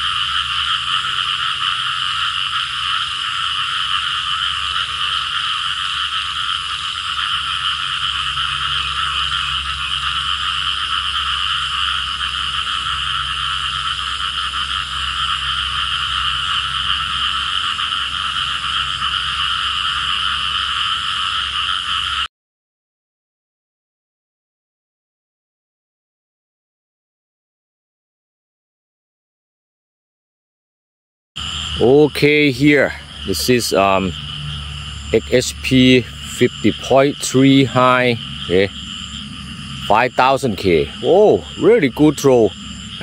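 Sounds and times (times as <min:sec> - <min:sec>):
chorus of frogs calling: 0:00.0 - 0:22.3, 0:31.4 - 0:43.0.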